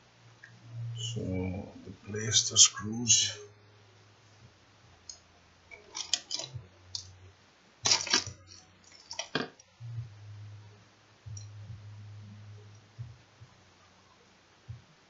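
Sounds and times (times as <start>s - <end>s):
faint low hum: 0.0s - 15.0s
screws and screwdriver clicking: 5.8s - 6.5s, 7.9s - 9.4s.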